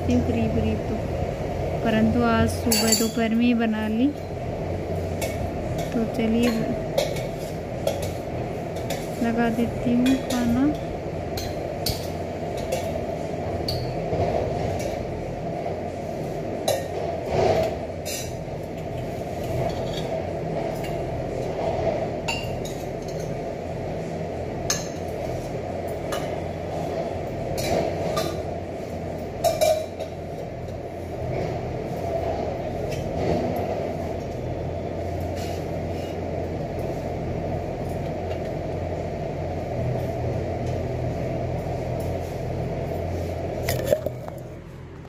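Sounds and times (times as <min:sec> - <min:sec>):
steady background hum: 0:00.0 - 0:45.0
steel utensils clinking: 0:02.6 - 0:03.4.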